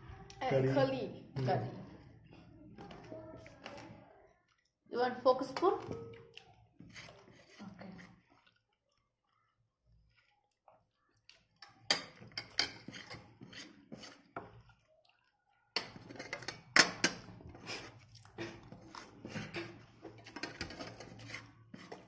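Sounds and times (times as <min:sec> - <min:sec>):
cutlery clinking on plates: 0:11.6 - 0:14.2, 0:15.8 - 0:17.4, 0:19.3 - 0:22.0.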